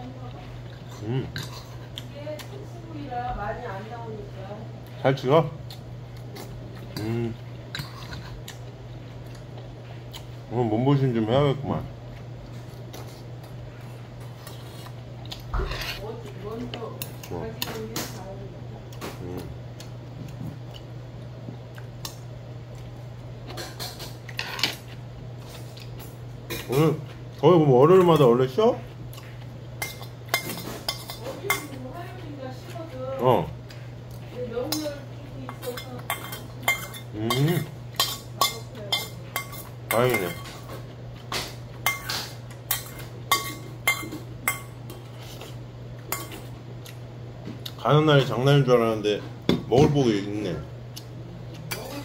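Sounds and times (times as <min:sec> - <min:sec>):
steady low hum: 0:00.0 - 0:52.0
metal spoon clinking in steel bowl: 0:35.5 - 0:40.5.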